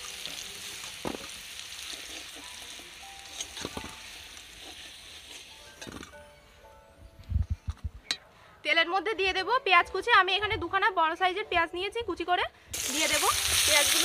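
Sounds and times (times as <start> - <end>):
hot oil sizzling: 0.0 - 6.2, 12.7 - 14.0.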